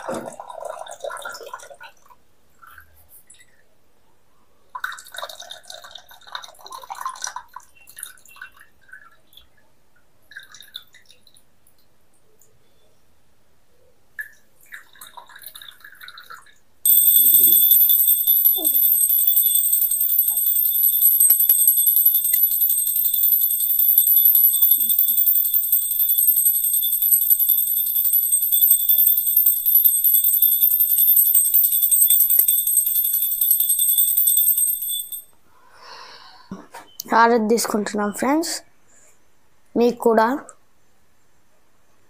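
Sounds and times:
water trickling into a cup: 0:04.8 - 0:09.6, 0:10.3 - 0:11.4, 0:14.2 - 0:16.6
hand bell ringing rapidly: 0:16.9 - 0:35.3.

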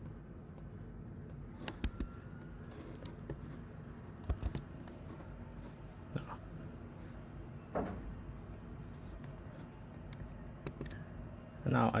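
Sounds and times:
low background hum: 0:00.0 - 0:12.0
computer keyboard clicks: 0:01.6 - 0:02.1, 0:04.1 - 0:05.0, 0:10.0 - 0:11.0.

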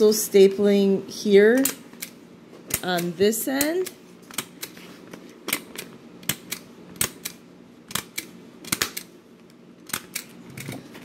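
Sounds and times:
stapler clicking: 0:06.2 - 0:09.1, 0:09.8 - 0:10.8.

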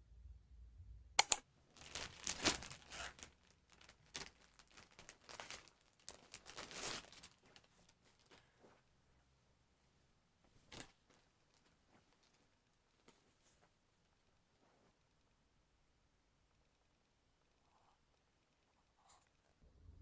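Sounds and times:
plastic bag crinkling: 0:01.7 - 0:08.8.

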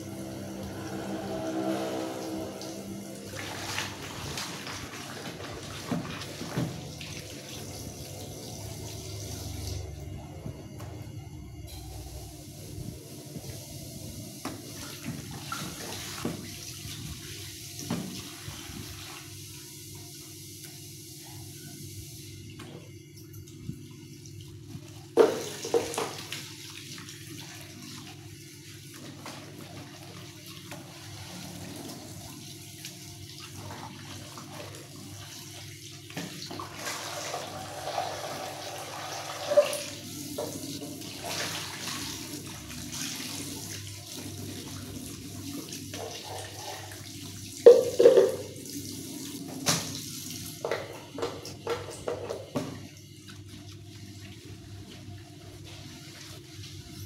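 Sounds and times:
tap running into sink: 0:25.2 - 0:26.3, 0:47.6 - 0:48.6, 0:49.5 - 0:52.9
dishes clattering against sink: 0:47.7 - 0:48.5.

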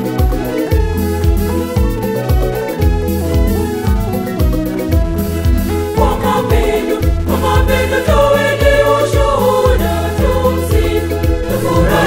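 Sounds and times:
choir singing: 0:05.9 - 0:12.0
steady low beat: 0:11.2 - 0:12.0.

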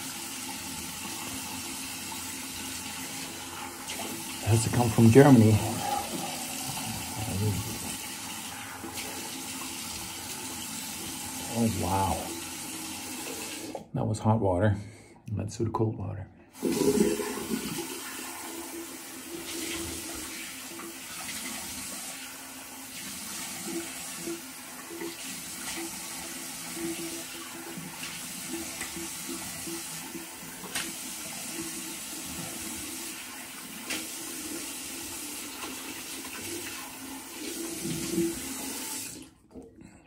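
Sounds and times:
tap water running into sink: 0:00.0 - 0:13.9, 0:16.6 - 0:39.6.

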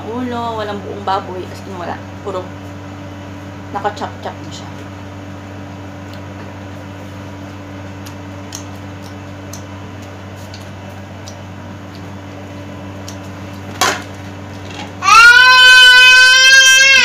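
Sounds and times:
steady low hum: 0:00.0 - 0:17.0
person chewing food: 0:07.5 - 0:12.2.

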